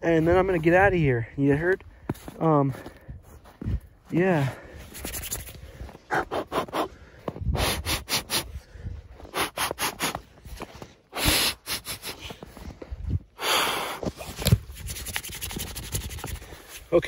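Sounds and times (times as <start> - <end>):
crunching on snow: 1.4 - 7.4
breathy rush: 4.4 - 10.3.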